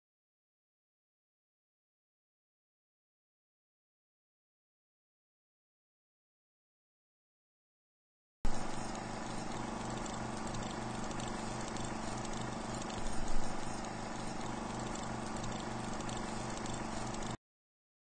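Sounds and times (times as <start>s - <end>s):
electrical hum: 8.5s - 17.4s
film projector clattering: 8.5s - 17.4s.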